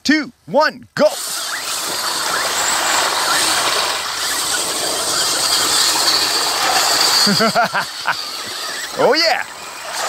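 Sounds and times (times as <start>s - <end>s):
tyres churning mud: 1.1s - 10.0s
electric motors whining: 1.2s - 10.0s.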